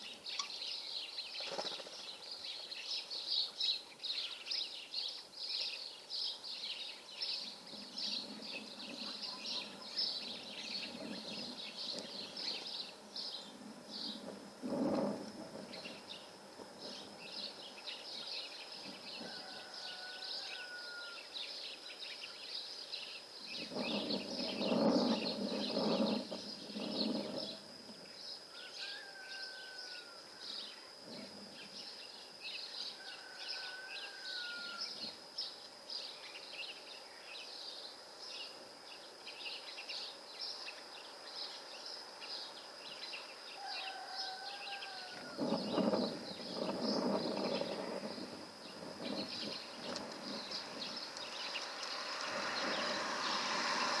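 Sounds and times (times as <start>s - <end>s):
small birds twittering: 0.0s - 54.0s.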